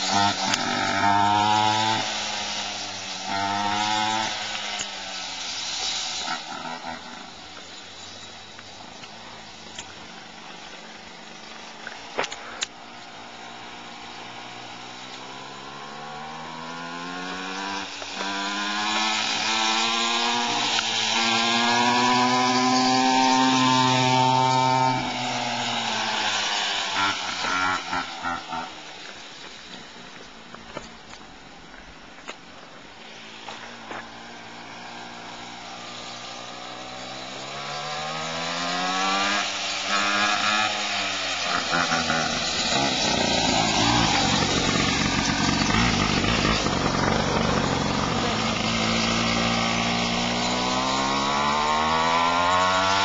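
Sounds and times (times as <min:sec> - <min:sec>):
engine running: 0:33.2 - 0:53.0.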